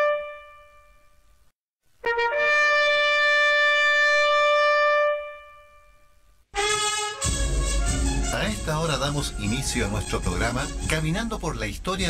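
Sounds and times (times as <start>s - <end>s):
horn-like wind instrument notes: 2.0s - 5.8s, 6.6s - 11.2s.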